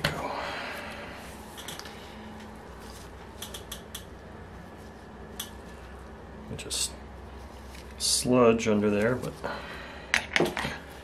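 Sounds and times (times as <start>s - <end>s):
sharp click: 3.4s - 4.1s.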